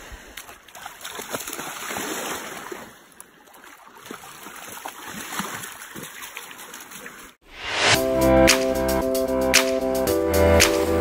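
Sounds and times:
dog splashing through water: 0.4s - 7.4s.

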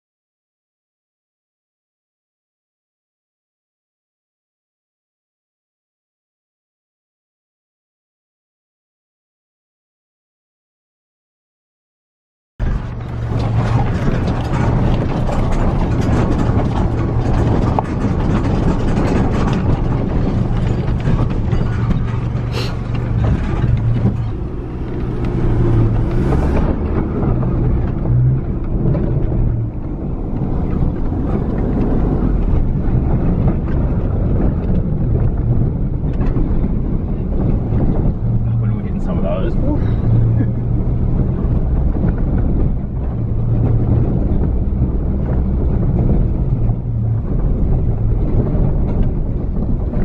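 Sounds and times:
body rattling and knocking: 12.6s - 50.0s
engine and tyre rumble: 12.6s - 50.0s.

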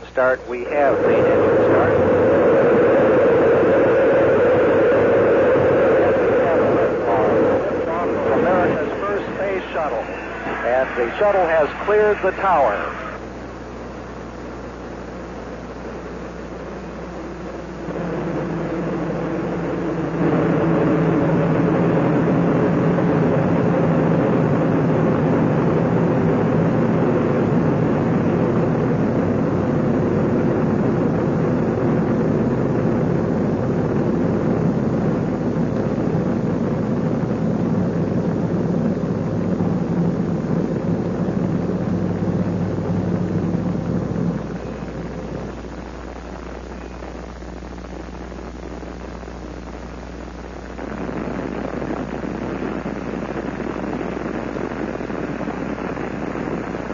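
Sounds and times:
loud rocket engine roar: 0.0s - 13.6s, 15.8s - 45.7s.

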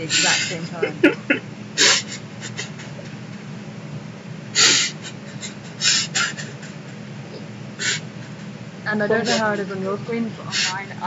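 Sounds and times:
steady low hum: 0.0s - 11.0s
stifled laughter: 0.2s - 3.1s, 4.6s - 7.0s, 7.8s - 8.5s.

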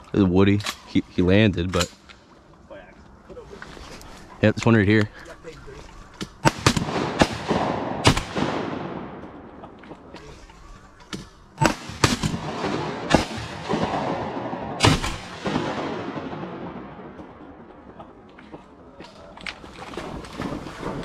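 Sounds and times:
shotgun shots echoing: 6.2s - 10.1s, 11.2s - 18.0s.

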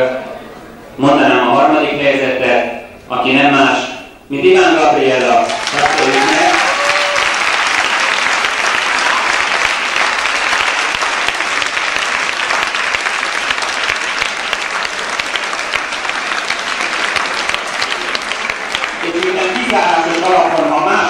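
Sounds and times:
audience applauding: 5.2s - 21.0s.

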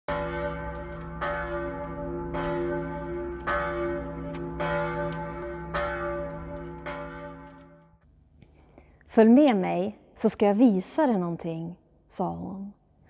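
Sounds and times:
church bells ringing: 0.1s - 8.0s.

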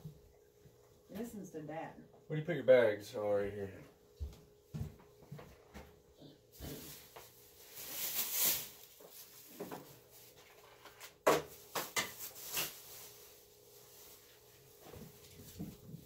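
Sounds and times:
rustling: 6.6s - 16.0s.

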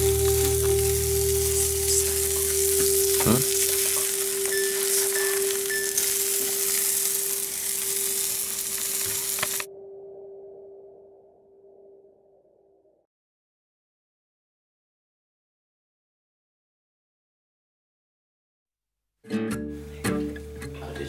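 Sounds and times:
eggs sizzling in a pan: 0.0s - 9.7s
steady hum: 0.0s - 11.7s.

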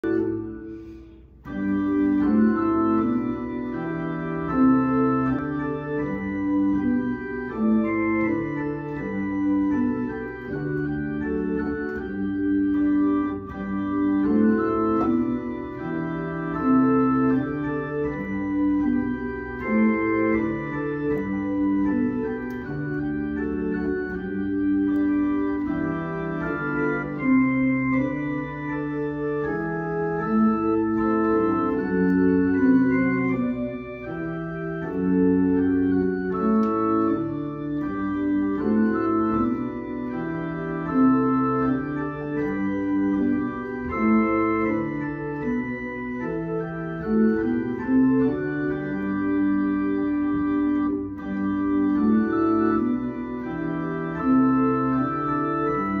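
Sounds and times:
electronic organ playing hymn: 0.0s - 56.0s.

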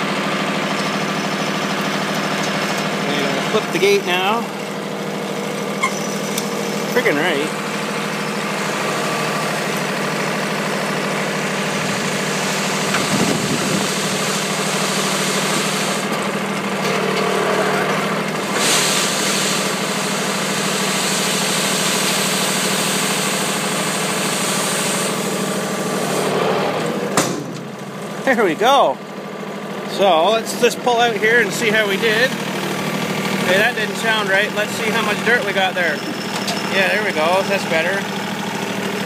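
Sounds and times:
tractor engine idling: 0.0s - 39.0s
hydraulic hiss: 18.4s - 26.4s.

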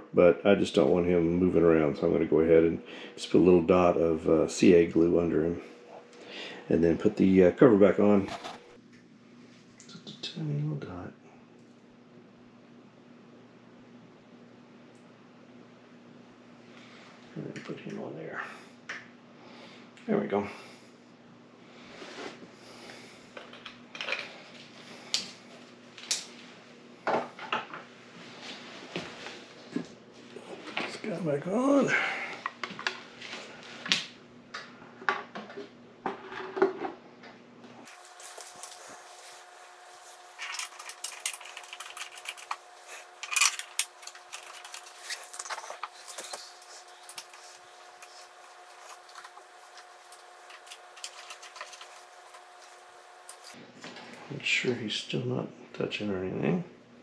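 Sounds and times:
faint steady hum: 0.0s - 57.0s
plastic items clicking and clattering: 40.4s - 52.6s
plastic cover clicking and rattling: 40.5s - 42.6s.

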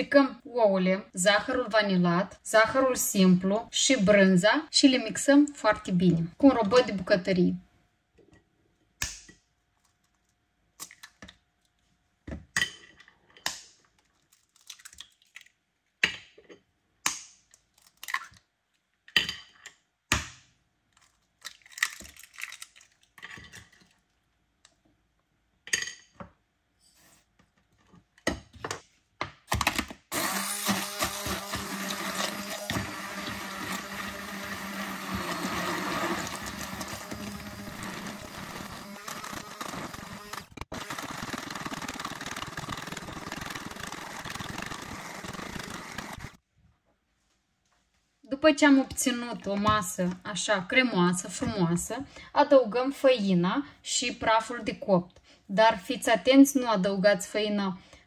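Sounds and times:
electric food processor running: 30.1s - 46.4s.

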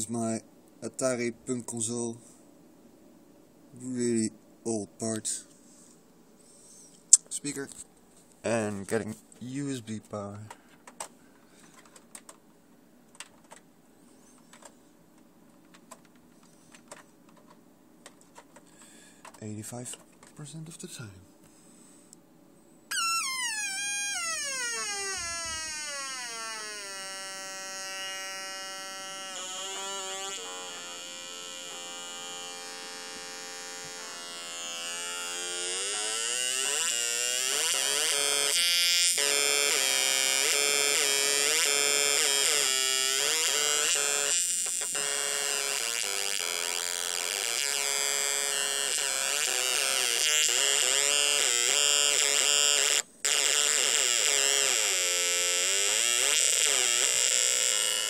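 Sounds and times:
square-wave synth buzzing: 22.9s - 58.0s.

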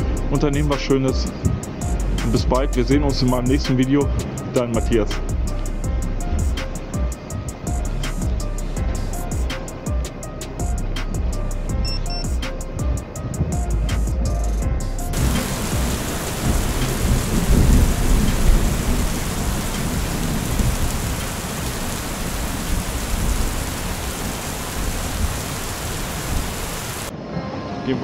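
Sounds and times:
background music: 0.0s - 26.4s
storm wind roaring: 15.1s - 27.7s.

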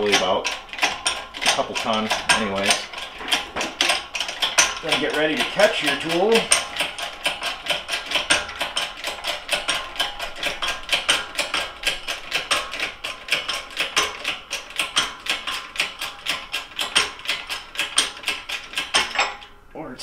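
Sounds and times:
hydraulic jack pumping clicks: 0.0s - 19.5s.

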